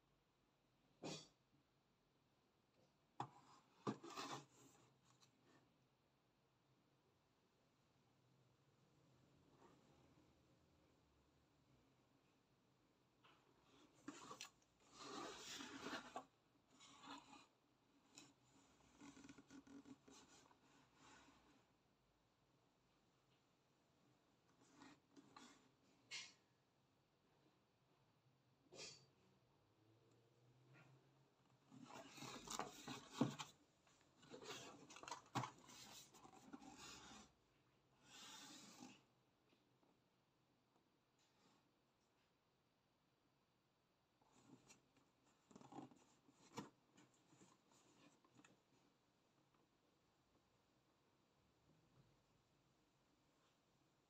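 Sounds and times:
cardboard box rubbing and scraping: 14.9s - 17.5s.

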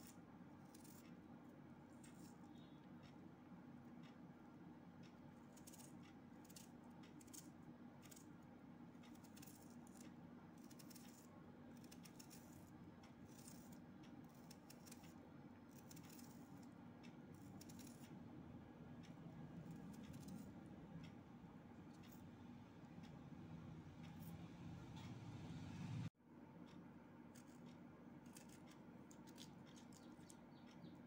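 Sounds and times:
faint low hum: 0.0s - 31.0s
knife slicing onion: 9.0s - 18.2s, 27.2s - 30.0s.

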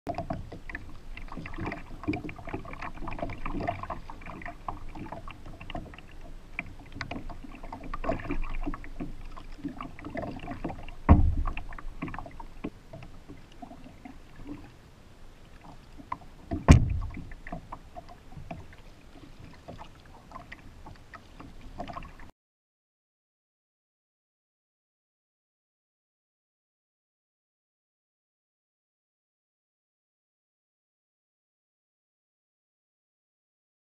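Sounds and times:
paddle strokes splashing water: 0.1s - 22.3s
thumps on paddleboard: 11.0s - 12.2s, 16.5s - 17.6s.

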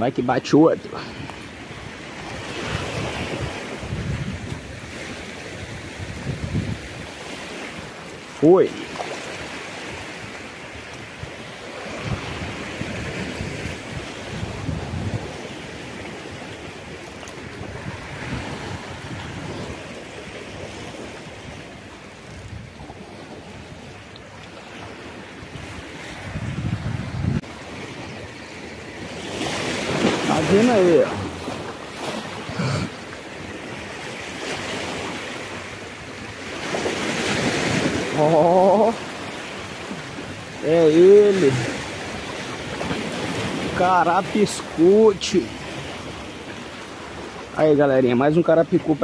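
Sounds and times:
sea surf washing in: 0.0s - 49.0s
wind buffeting microphone: 1.5s - 8.3s, 11.0s - 24.0s, 25.1s - 28.3s.

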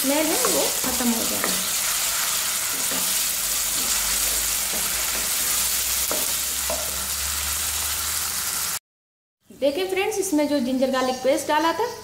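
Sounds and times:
onions sizzling in hot oil: 0.0s - 8.8s.

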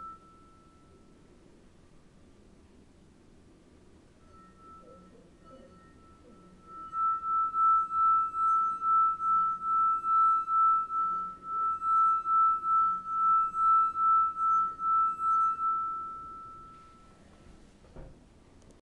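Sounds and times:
singing wine glass: 0.0s - 1.2s, 4.2s - 17.4s.

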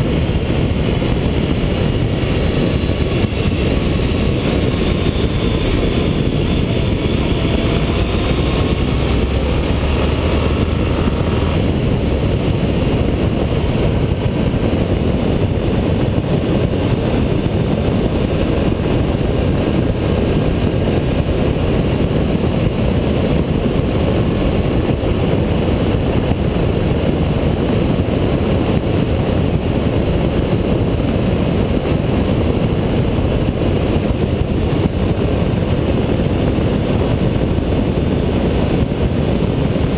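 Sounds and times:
faint rising whine: 0.0s - 14.6s
motorcycle engine running: 0.0s - 39.9s
wind rush: 0.0s - 39.9s.

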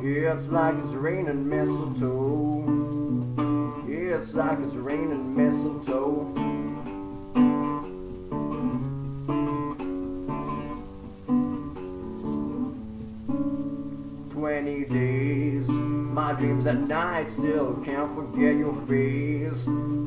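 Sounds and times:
man singing: 0.0s - 2.9s, 3.8s - 6.9s, 14.3s - 20.0s
acoustic guitar strumming: 0.0s - 20.0s.

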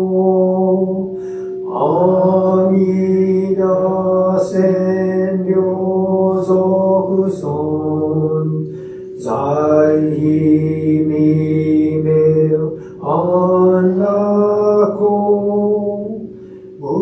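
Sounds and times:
man chanting: 0.0s - 17.0s.

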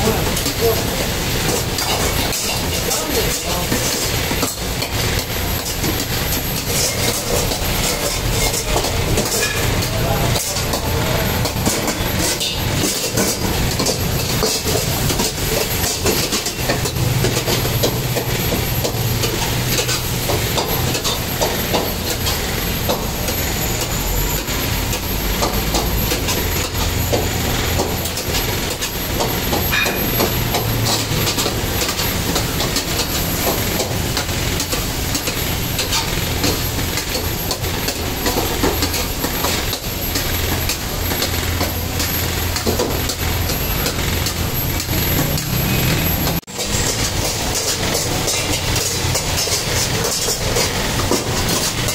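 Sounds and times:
gas burner flame: 0.0s - 51.9s
ladle scraping a wok: 25.6s - 51.9s.

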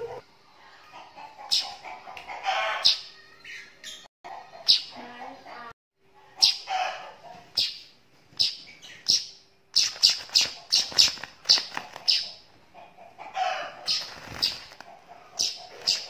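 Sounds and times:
bird chirping high: 6.4s - 6.9s, 7.5s - 12.4s, 15.4s - 16.0s
bird wings flapping: 9.9s - 12.2s, 13.9s - 14.9s.

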